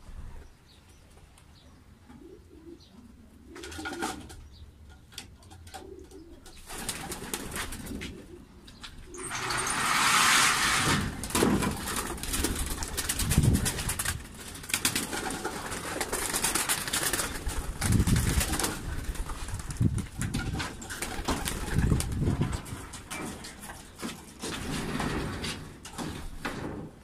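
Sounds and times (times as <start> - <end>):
pigeons cooing: 1.8 - 10.0
wing claps and flapping: 6.5 - 9.0, 11.1 - 23.1.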